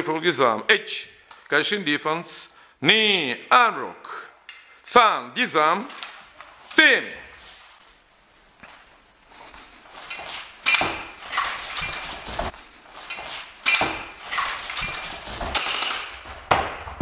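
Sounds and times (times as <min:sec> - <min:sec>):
rifle clattering and knocking: 0:13.1 - 0:16.3.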